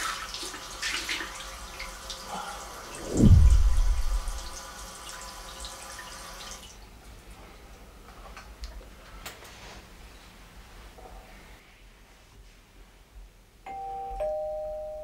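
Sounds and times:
running bathroom tap: 0:00.0 - 0:02.8, 0:04.4 - 0:06.8
deep falling cinematic boom: 0:02.9 - 0:04.6.

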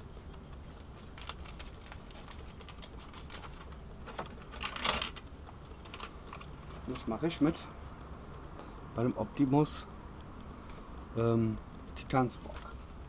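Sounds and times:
foil sachet crinkling: 0:00.3 - 0:04.5.

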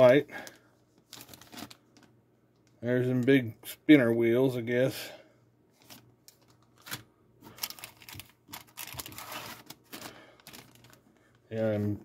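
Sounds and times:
plastic bags crinkling: 0:00.0 - 0:02.2, 0:05.8 - 0:11.7.

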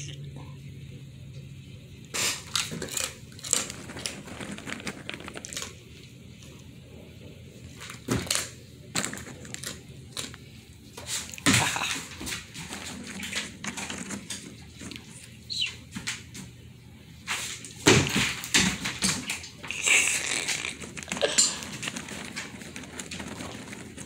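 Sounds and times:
dog claws clicking on wooden floor: 0:02.2 - 0:05.8, 0:07.7 - 0:10.5, 0:11.2 - 0:16.5, 0:17.9 - 0:24.0.

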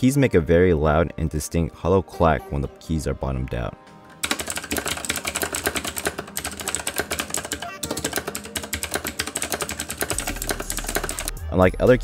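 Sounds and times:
fast mechanical keyboard typing: 0:04.2 - 0:11.3.

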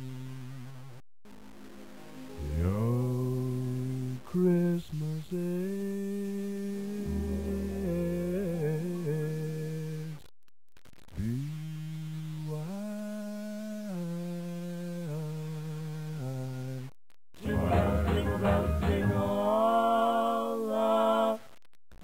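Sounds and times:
man humming a slow melody: 0:02.4 - 0:10.2, 0:11.2 - 0:20.3.

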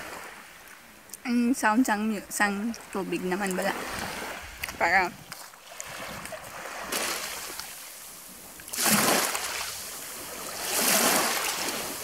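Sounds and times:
small waves washing over pebbles: 0:02.7 - 0:12.0.

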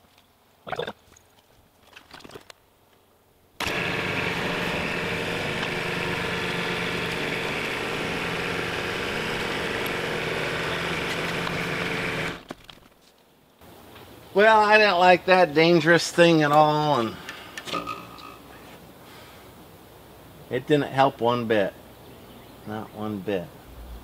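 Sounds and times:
tractor diesel engine running: 0:03.6 - 0:12.4.

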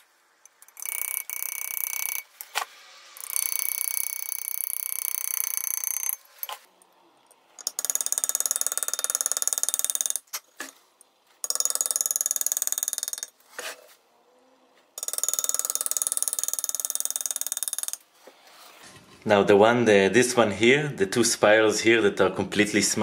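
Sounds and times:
engraving tool buzzing: 0:03.2 - 0:06.2.

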